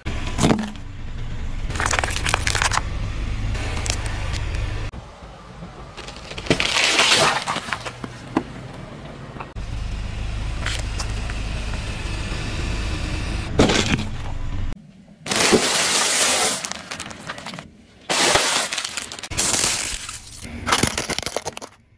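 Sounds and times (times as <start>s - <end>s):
car engine rumbling: 0.0s - 6.7s, 7.6s - 15.3s, 18.7s - 21.9s
watermelon bursting and cracking: 1.7s - 2.9s
loud crunch: 1.7s - 4.8s, 6.0s - 8.3s, 15.2s - 21.9s.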